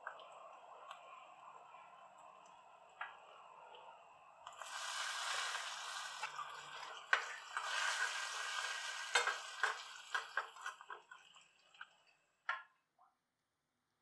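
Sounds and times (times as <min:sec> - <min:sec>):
spices sizzling in hot ghee: 0:04.5 - 0:11.0
ladle scraping and clicking on pan: 0:09.1 - 0:11.0.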